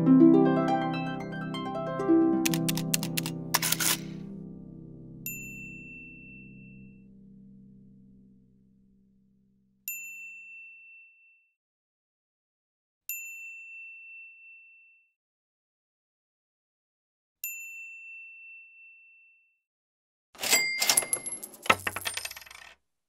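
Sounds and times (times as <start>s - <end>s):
bell-like ding chimes: 20.4s - 21.4s
metallic clinks clattering: 20.4s - 22.7s.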